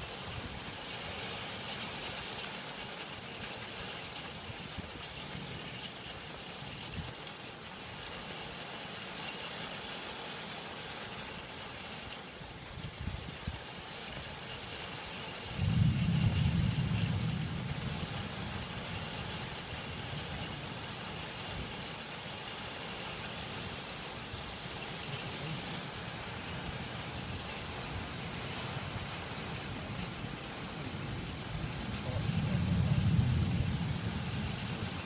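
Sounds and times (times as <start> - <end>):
rain hissing: 0.0 - 35.0
thunder rumbling: 15.4 - 22.1, 23.6 - 35.0.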